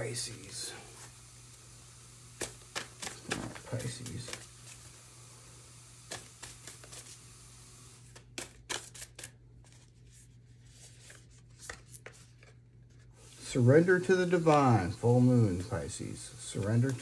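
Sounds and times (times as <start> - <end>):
cards being shuffled: 2.4 - 4.9, 6.0 - 7.3, 8.0 - 17.0.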